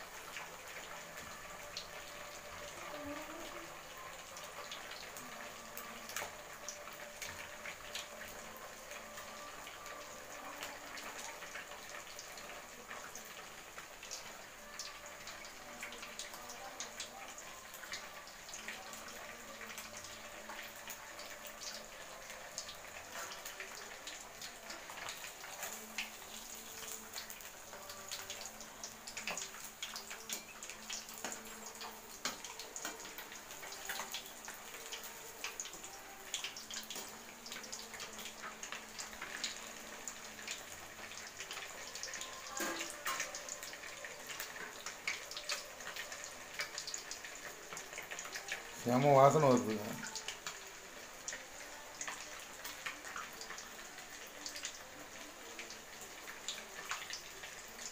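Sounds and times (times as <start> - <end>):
fish deep-frying in hot oil: 0.0 - 57.9.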